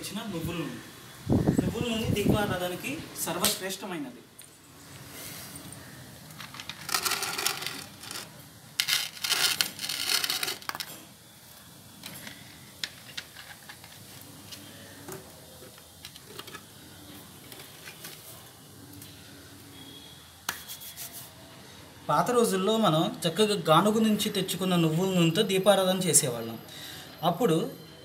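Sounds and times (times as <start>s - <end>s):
dung cakes scraping and clinking: 6.4s - 11.1s.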